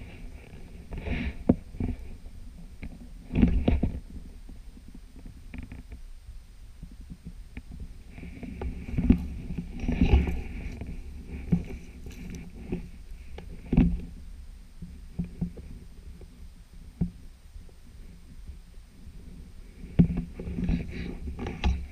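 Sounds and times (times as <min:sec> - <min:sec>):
brush rustling against clothing: 0:08.1 - 0:14.1.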